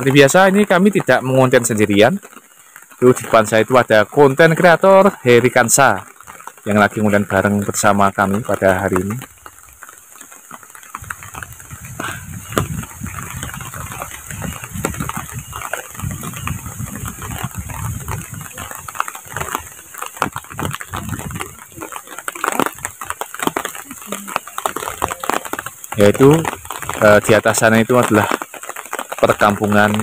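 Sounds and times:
light rain hiss: 0.0 - 30.0
sharp ticks: 0.0 - 30.0
wind gusting on microphone: 10.7 - 28.6.

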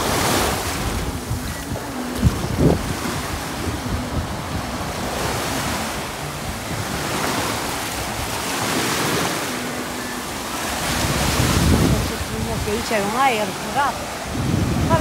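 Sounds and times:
small waves breaking on shore: 0.0 - 15.0.

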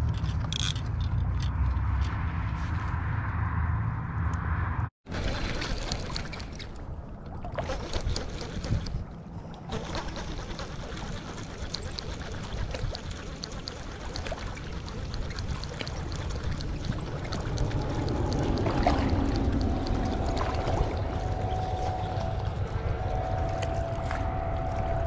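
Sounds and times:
low rumble of wind and water: 0.0 - 25.0
fishing reel ticking: 0.5 - 0.8, 9.7 - 25.0
faint steady hum: 15.8 - 25.0.

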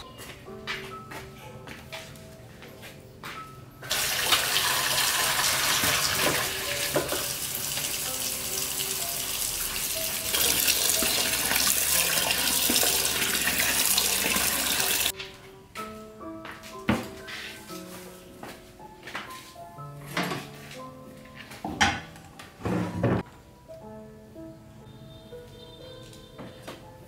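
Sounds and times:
water running from tap: 3.8 - 15.1.

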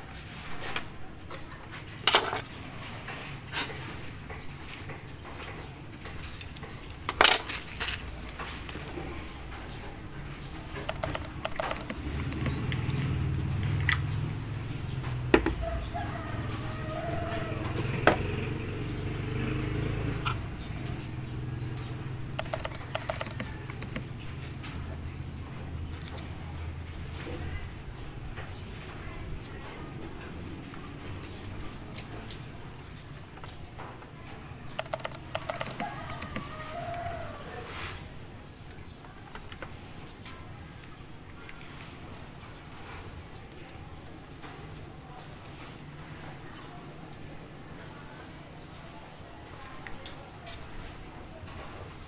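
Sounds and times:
plastic parts clicking and rattling: 10.8 - 12.6, 22.4 - 24.1, 34.8 - 36.4
sharp clicks: 10.8 - 13.0, 22.4 - 24.2, 34.8 - 36.6.

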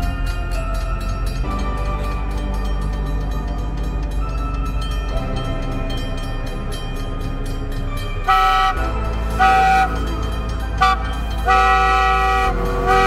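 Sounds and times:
motor car horn blasts: 8.3 - 10.1, 10.8 - 13.0.

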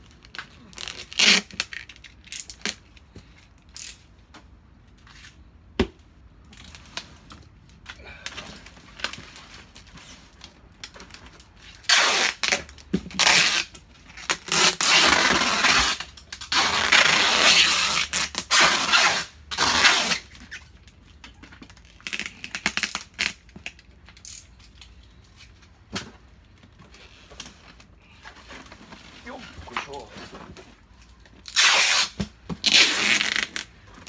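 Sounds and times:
packing tape tearing screech: 0.3 - 2.8, 11.6 - 20.8, 21.7 - 24.5, 31.4 - 33.8.

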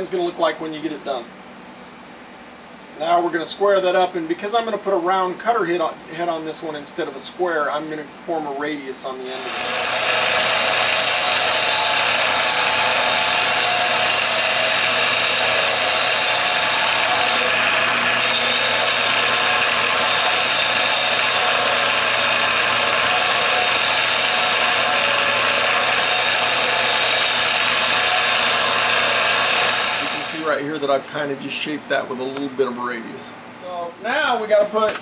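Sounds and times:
disc sander grinding steel: 9.3 - 30.6.

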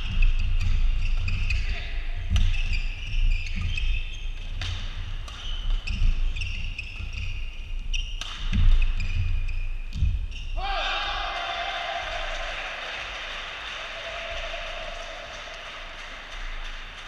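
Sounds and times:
shoes squeaking on court: 0.0 - 10.6
racket hitting shuttlecock: 8.0 - 9.3.

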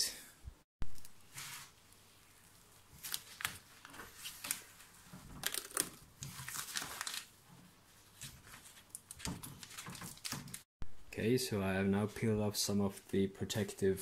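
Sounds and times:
plastic film crinkling: 1.4 - 7.4, 8.0 - 10.7.

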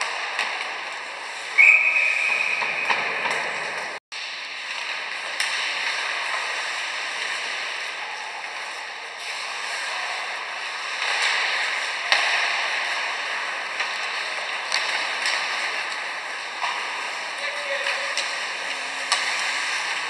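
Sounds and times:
hockey sticks striking puck: 0.0 - 20.0
arena noise: 5.3 - 20.0.

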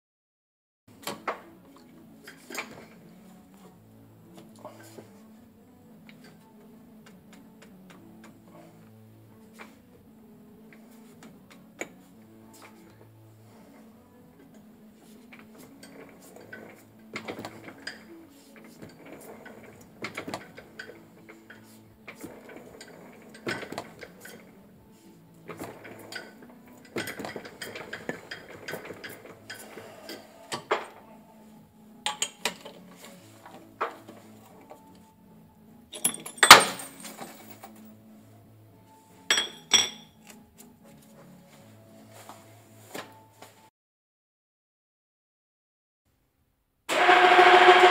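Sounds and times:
steel clinking and scraping: 15.1 - 31.0, 35.9 - 38.0.

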